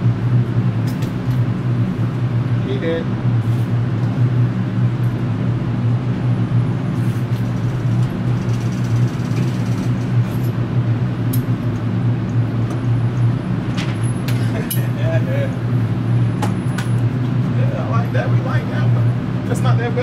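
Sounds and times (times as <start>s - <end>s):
ventilation hum: 0.0s - 20.0s.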